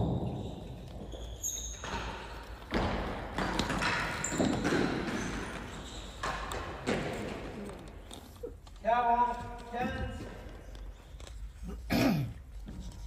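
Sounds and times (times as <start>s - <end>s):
ball knocks echoing in hall: 0.0s - 7.9s.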